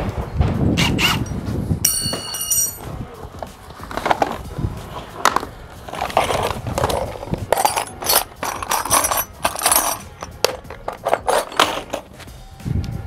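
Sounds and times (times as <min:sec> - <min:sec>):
tools clattering on a work surface: 0:01.0 - 0:12.3
sharp clinks: 0:01.2 - 0:02.9, 0:07.5 - 0:12.0.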